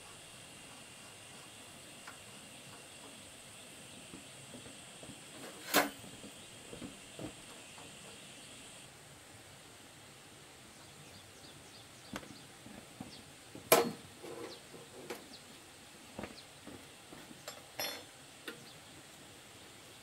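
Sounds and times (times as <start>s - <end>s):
hand tools knocking and clinking: 13.7s - 14.0s, 17.5s - 18.1s.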